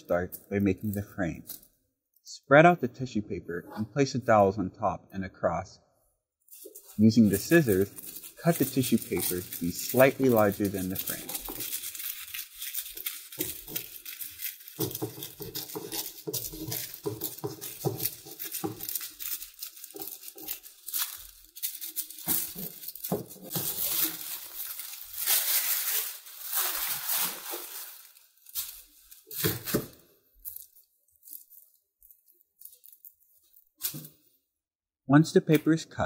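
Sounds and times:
scissors cutting paper: 6.5s - 28.0s
tissue paper rustling: 6.5s - 34.1s.

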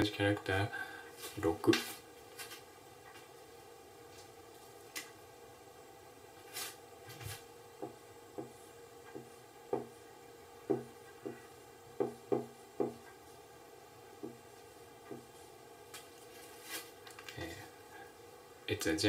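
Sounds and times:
marker writing on a whiteboard: 10.7s - 13.1s.

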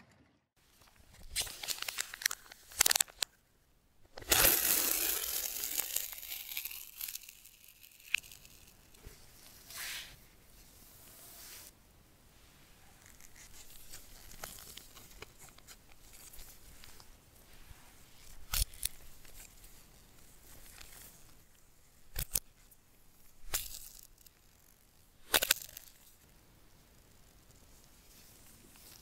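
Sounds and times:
cable and paper rustling: 0.7s - 3.4s, 4.0s - 9.0s, 13.0s - 17.1s.

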